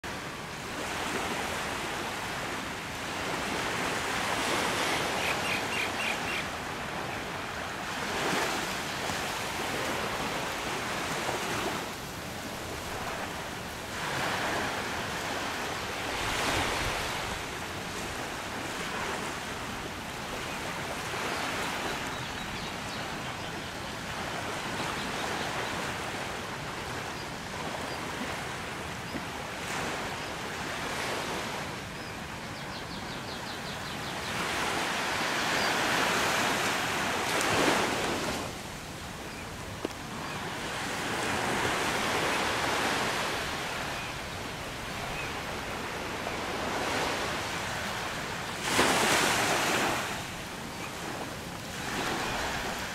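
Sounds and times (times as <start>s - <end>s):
small waves breaking on beach: 0.0s - 52.9s.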